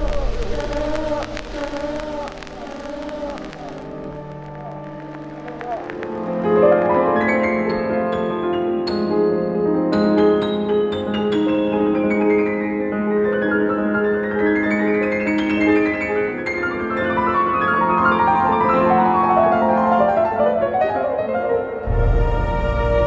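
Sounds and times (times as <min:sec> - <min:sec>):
piano music: 0:00.0 - 0:23.0.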